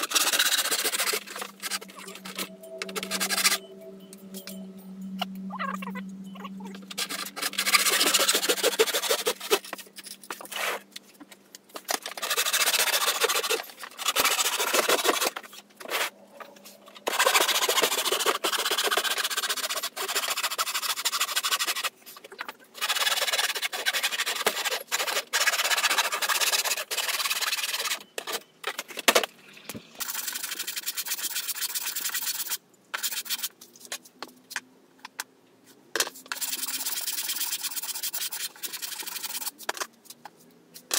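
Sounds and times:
handsaw cutting plywood: 0.0 - 3.6, 6.9 - 9.7, 12.0 - 16.0, 17.1 - 21.9, 22.8 - 28.0.

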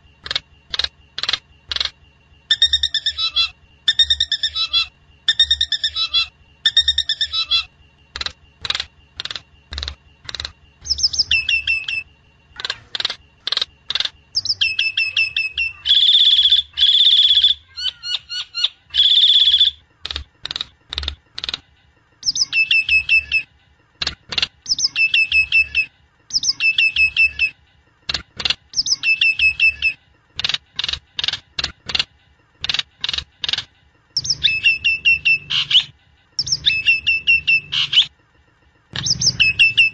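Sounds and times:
harsh bird calls: 0.0 - 21.6, 34.2 - 38.1
bird clicking notes: 8.2 - 10.6
bird whistled phrases: 14.4 - 19.8.

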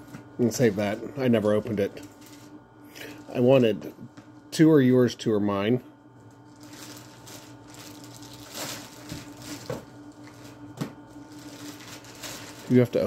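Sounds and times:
plastic bag crinkling: 1.8 - 2.5, 6.5 - 13.0.

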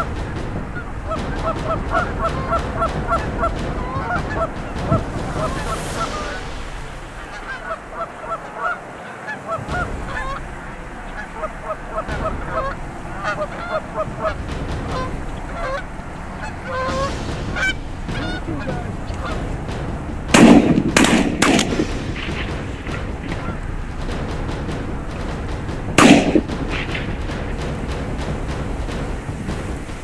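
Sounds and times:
geese honking and clucking: 0.0 - 30.0
loud shotgun shots: 20.3 - 28.5.

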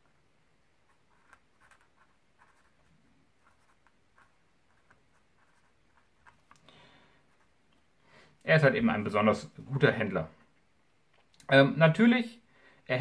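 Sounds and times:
pen scratching on paper: 0.8 - 6.5.

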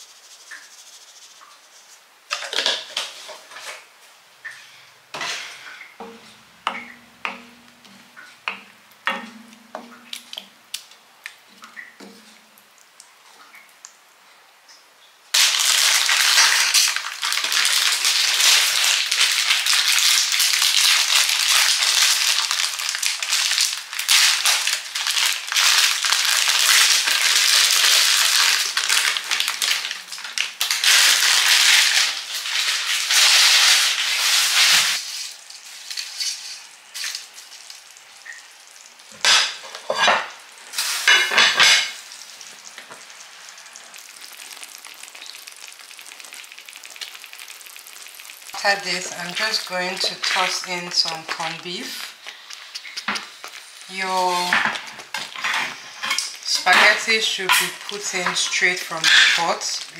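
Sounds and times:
crackling hiss of cooking: 0.0 - 59.9
wooden spoon knocking on pan: 6.0 - 10.1.

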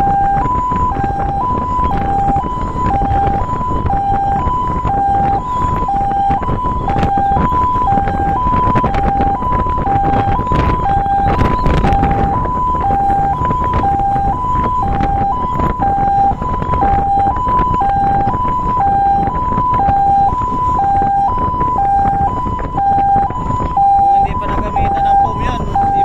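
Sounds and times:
truck rumble: 0.0 - 26.0
two-tone siren: 0.0 - 26.0.

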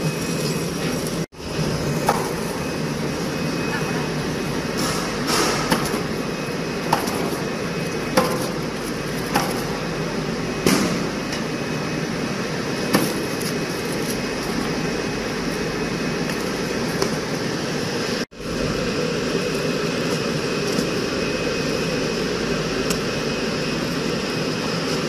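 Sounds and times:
hot-air blower rushing: 4.3 - 25.0
books knocking on conveyor: 4.8 - 6.2, 6.8 - 7.5, 8.1 - 9.8.

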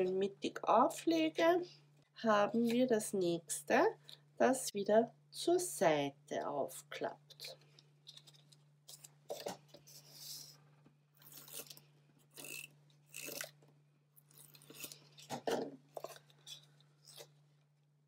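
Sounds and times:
paper cards rustling and scraping: 7.4 - 11.8.

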